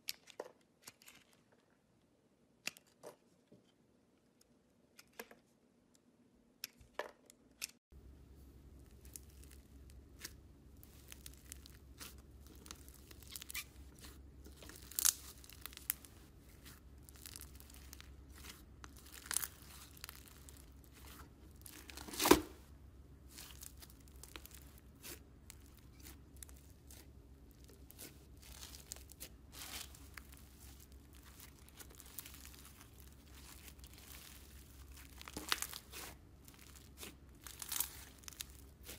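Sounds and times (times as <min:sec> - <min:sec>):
low steady hum: 0:07.9 - 0:38.9
slime crackling when kneaded: 0:08.8 - 0:22.4, 0:23.2 - 0:38.9.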